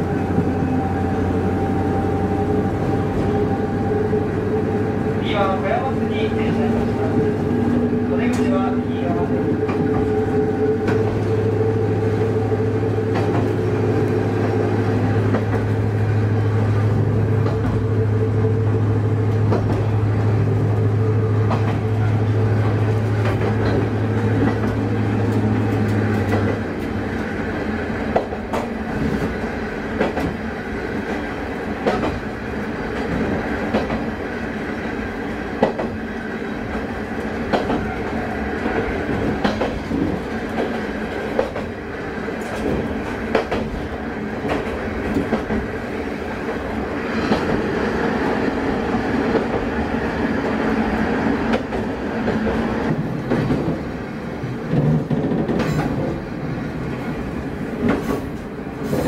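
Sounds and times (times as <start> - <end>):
railcar rumbling: 0.0 - 59.0
wheels clicking over rail joints: 36.6 - 41.8.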